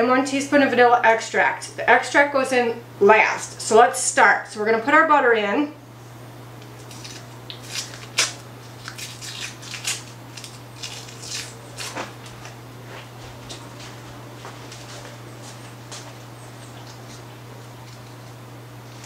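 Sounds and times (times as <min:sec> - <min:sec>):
paper wrapper crinkling: 0:06.8 - 0:12.5.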